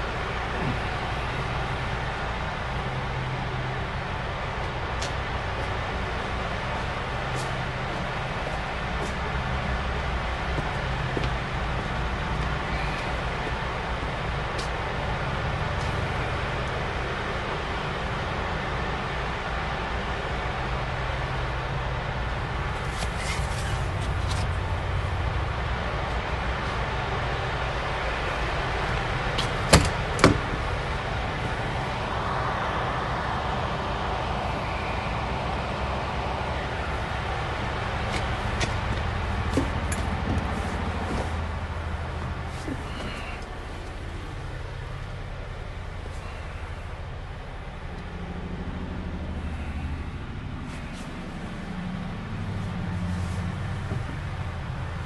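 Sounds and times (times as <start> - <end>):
diesel engine running: 0.0 - 55.0
low rumble and hiss: 0.0 - 55.0
truck door latch clicks: 29.4 - 30.6.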